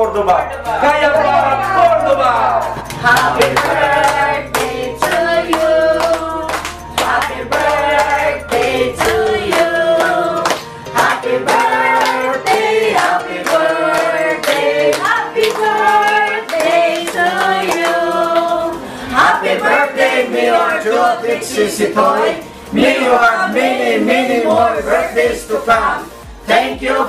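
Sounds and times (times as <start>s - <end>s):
group singing: 1.0s - 27.0s
hands clapping in time: 2.8s - 18.0s.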